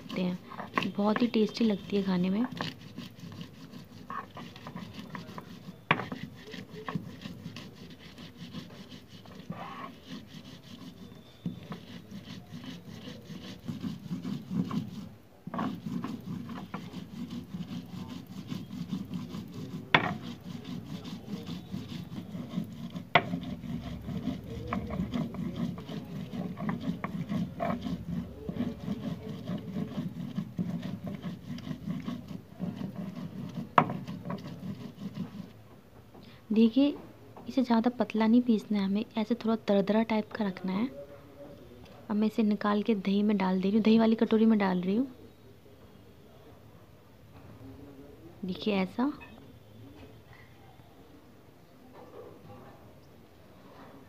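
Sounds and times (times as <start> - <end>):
stone roller grinding on stone slab: 0.0 - 35.6
stone knocks: 20.0 - 20.2.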